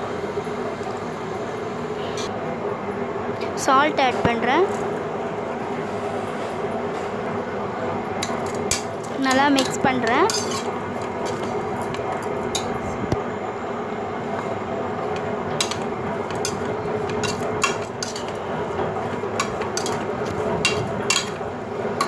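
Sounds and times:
steady background hum: 0.0 - 22.0
metal spoon clinking in pot: 15.6 - 18.4, 19.4 - 21.4.

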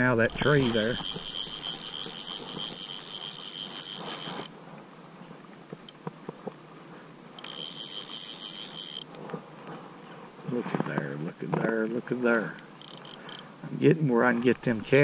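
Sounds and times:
insects buzzing: 0.0 - 4.6, 5.7 - 10.5, 12.5 - 13.8.

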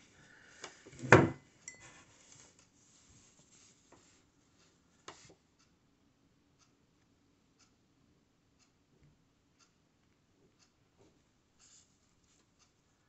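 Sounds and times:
faint rustles and ticks: 0.0 - 5.8, 8.5 - 13.0.

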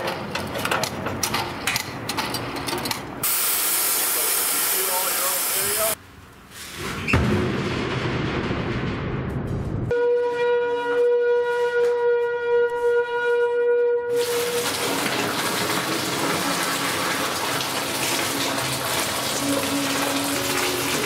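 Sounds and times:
molten metal pouring: 14.2 - 21.0.

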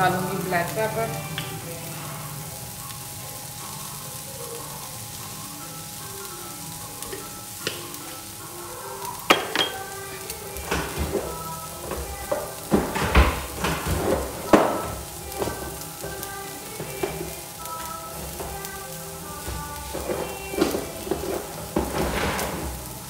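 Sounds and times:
food sizzling in a frying pan: 0.0 - 23.0
clinks and knocks against pan: 9.3 - 9.9.

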